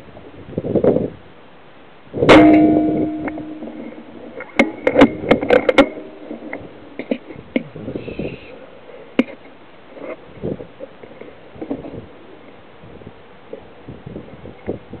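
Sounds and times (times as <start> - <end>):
rifle shot with ringing tail: 2.3 - 4.2
sharp clicks and knocks: 2.3 - 7.2.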